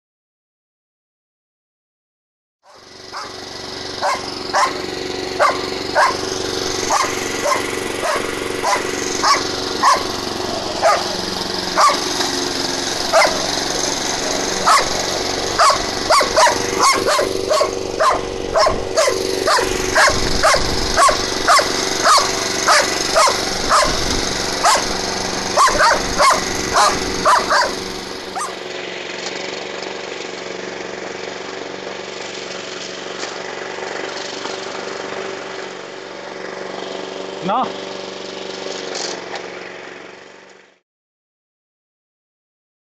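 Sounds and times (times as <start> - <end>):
lawn mower engine running: 2.7 - 40.8
dog barking: 4.0 - 4.8, 5.4 - 6.2, 6.9 - 10.0, 10.8 - 11.2, 11.8 - 12.0, 13.1 - 13.4, 14.7 - 14.9, 15.6 - 24.0, 24.6 - 24.9, 25.6 - 27.8, 28.4 - 28.6.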